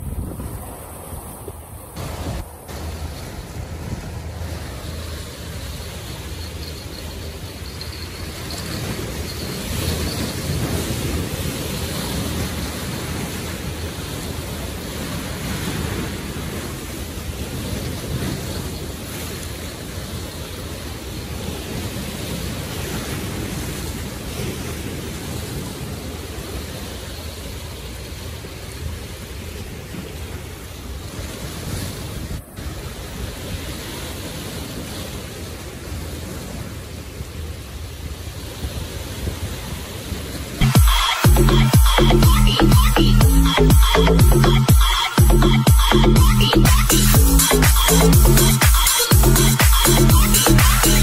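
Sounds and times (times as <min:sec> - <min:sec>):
wind buffeting microphone: 0:00.0 - 0:05.3
waves breaking on rocks: 0:00.0 - 0:41.9.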